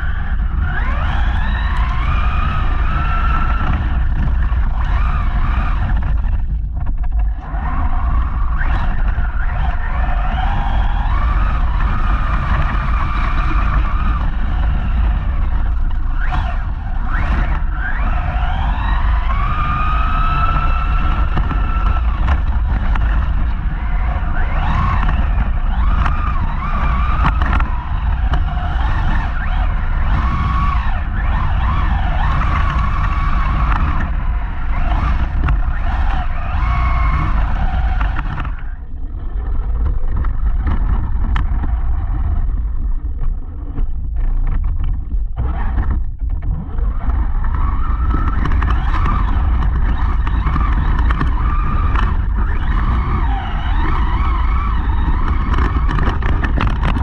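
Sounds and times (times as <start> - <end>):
electric motor whine: 0.0 - 39.8
rumble of wheels and wind: 0.0 - 57.0.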